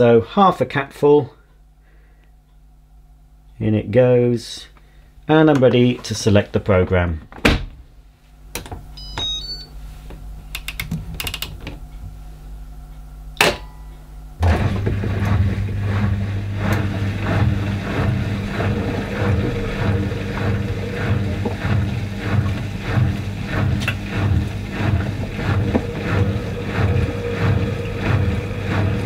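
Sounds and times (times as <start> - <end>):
washing machine humming: 7.6 - 29.0
control panel beeps: 9.0 - 9.7
washing machine clicks: 10.5 - 12.0, 13.4 - 15.4
water swishing in drum: 14.4 - 29.0.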